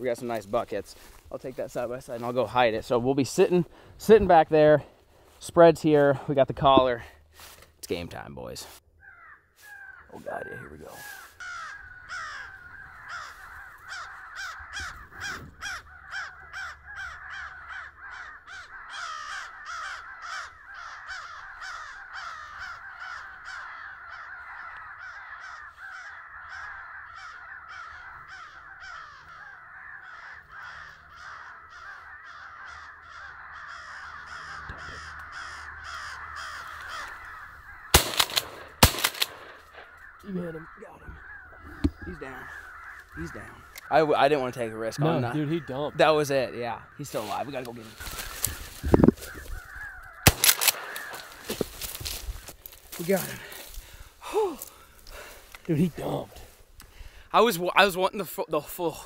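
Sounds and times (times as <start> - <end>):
crows cawing: 8.9 - 59.0
gunshots: 37.9 - 39.9, 50.3 - 51.2.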